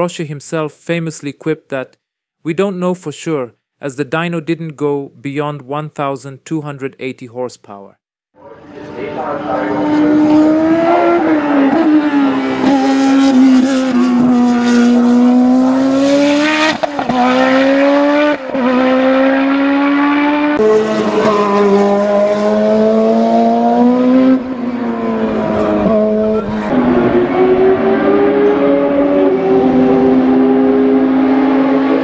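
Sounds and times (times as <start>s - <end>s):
racing car engine: 8.4s - 32.0s.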